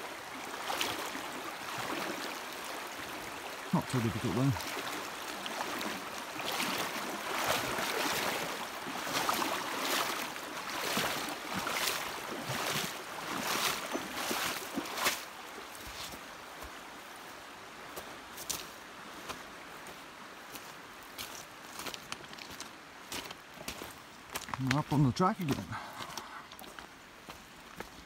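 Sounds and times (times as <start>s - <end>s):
footsteps splashing in creek: 0.0s - 28.0s
rushing water: 0.0s - 28.0s
stones clicking underfoot: 21.8s - 25.0s.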